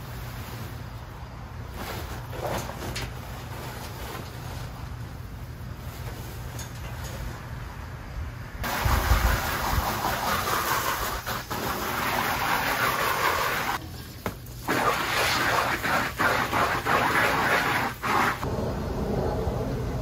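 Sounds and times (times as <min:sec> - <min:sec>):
hose water spattering on tarp: 0:08.6 - 0:18.5.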